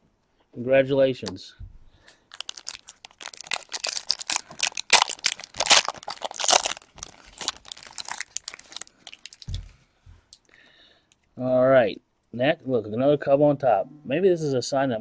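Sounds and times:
card pack wrapper crinkling: 2.1s - 9.7s.

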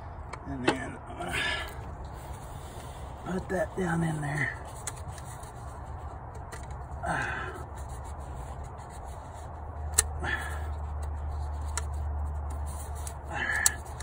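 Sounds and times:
steady low hum: 0.0s - 14.0s
rubbing and handling noises: 1.6s - 14.0s.

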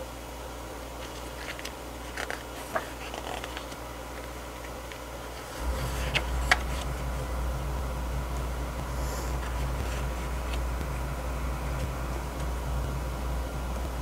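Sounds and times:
low steady rumble: 0.0s - 14.0s
pages rustling: 1.0s - 7.3s.

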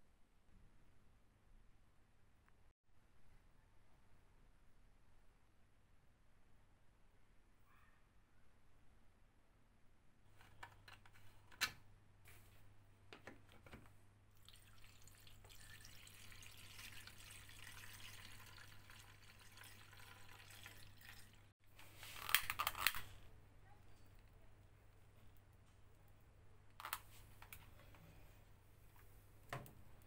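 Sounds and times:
liquid trickling through funnel: 14.4s - 21.5s.

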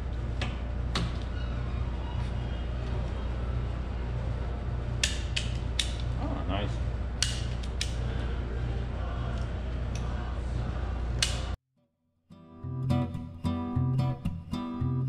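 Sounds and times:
steady low hum: 0.0s - 11.6s
wire tool clicking: 7.2s - 8.0s.

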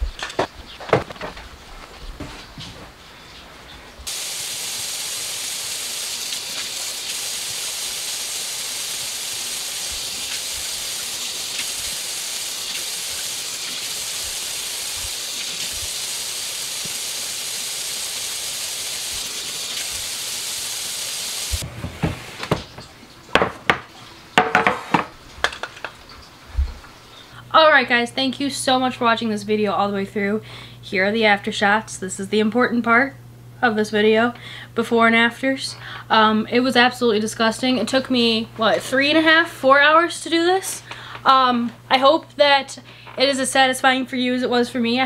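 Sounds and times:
items knocking on counter: 21.6s - 25.8s.

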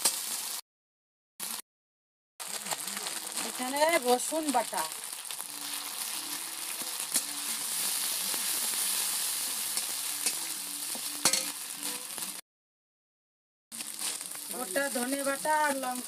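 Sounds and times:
onion sizzling in hot oil: 0.0s - 0.6s, 1.4s - 1.6s, 2.4s - 12.4s, 13.7s - 16.0s
metal spatula scraping pan: 11.2s - 12.2s.

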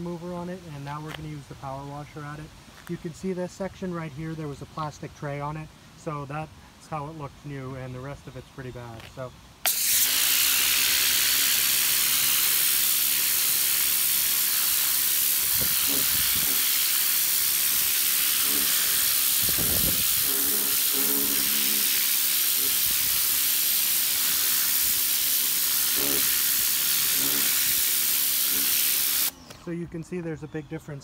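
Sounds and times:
pressure washer spraying: 9.7s - 29.3s.

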